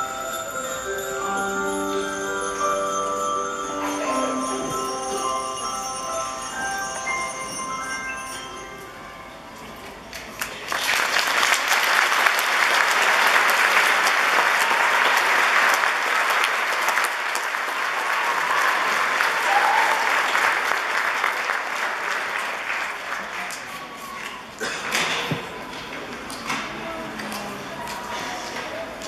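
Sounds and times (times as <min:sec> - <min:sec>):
audience applauding: 0:10.1 - 0:24.6.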